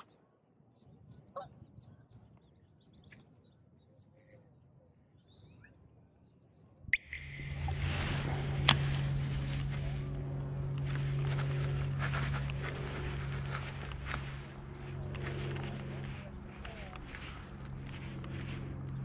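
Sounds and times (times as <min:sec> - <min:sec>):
low motor hum: 0:07.0 - 0:19.0.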